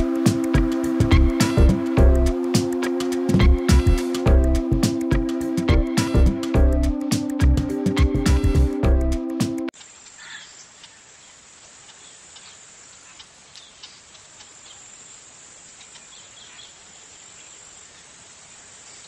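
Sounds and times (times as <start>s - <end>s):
background music: 0.0s - 9.7s
insect chirps: 9.7s - 19.0s
insects trilling: 9.8s - 19.0s.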